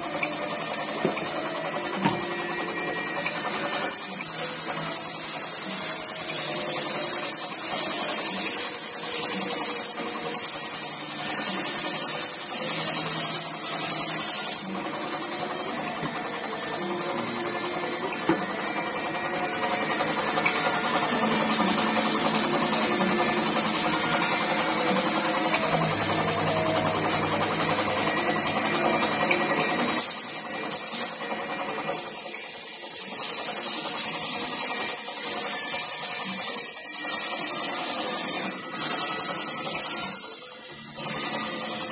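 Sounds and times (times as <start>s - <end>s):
machine running: 0.0s - 41.9s
airbrush air hiss: 3.8s - 14.7s, 30.0s - 31.2s, 31.9s - 41.9s
spray gun hissing: 3.9s - 14.7s.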